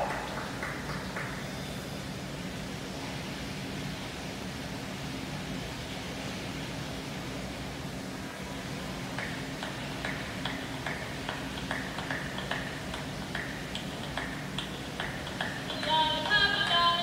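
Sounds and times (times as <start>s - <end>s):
low hum of rink: 8.2s - 17.0s
steady ticking over speakers: 9.1s - 17.0s
song over speakers: 15.3s - 17.0s.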